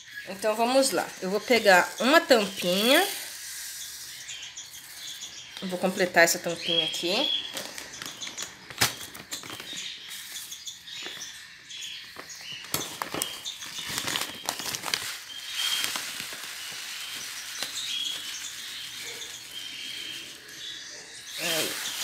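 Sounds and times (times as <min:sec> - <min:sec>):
high bird chirps: 0:00.0 - 0:22.0
feed pellets rattling into plastic scoop: 0:00.6 - 0:03.4, 0:12.8 - 0:20.5, 0:21.3 - 0:22.0
feed bag rustling: 0:12.2 - 0:22.0.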